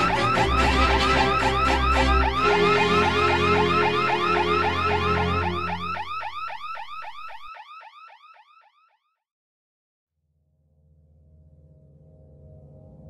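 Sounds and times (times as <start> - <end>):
low held tones: 0.0 - 7.3
electronic alarm warbling chirp: 0.0 - 8.9.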